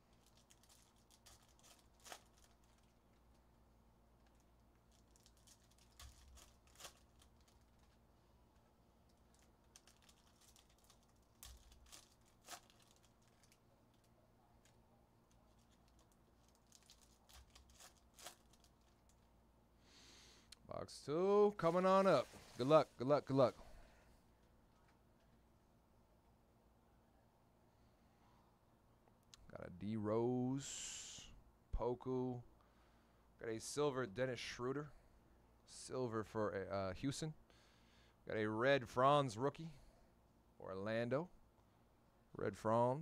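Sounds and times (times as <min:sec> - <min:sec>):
foil packs tearing and crinkling: 0:00.2 - 0:03.0, 0:04.9 - 0:07.9, 0:09.3 - 0:13.6, 0:15.5 - 0:19.0.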